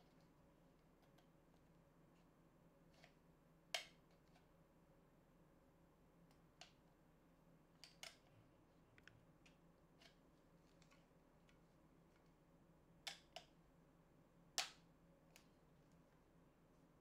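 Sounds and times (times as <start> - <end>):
faint clicks and taps of handling: 7.8 - 12.4, 13.0 - 13.6.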